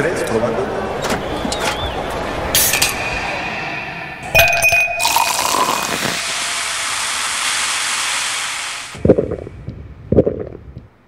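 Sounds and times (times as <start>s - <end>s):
can pulled open: 5.0s - 6.4s
fizzing hiss of cola: 5.0s - 9.0s.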